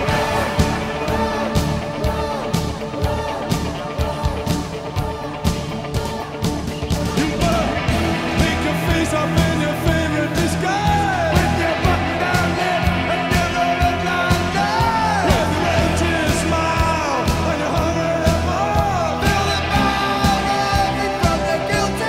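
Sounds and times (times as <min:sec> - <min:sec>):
song with singing over beat: 0:00.0 - 0:22.0.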